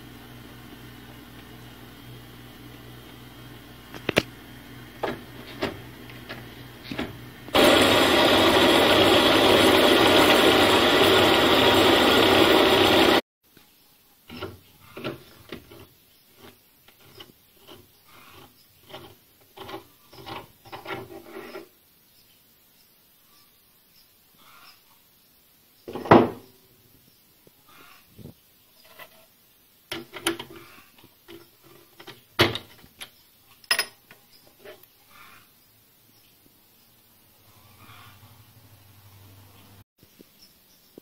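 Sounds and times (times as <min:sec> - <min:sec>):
lathe hum: 0:00.0 - 0:13.2
lathe turning noise: 0:00.0 - 0:13.2.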